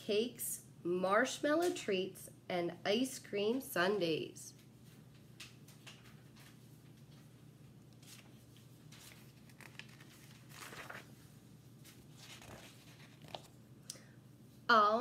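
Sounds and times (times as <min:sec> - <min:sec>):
book page turning rustle: 0:07.9 - 0:13.6.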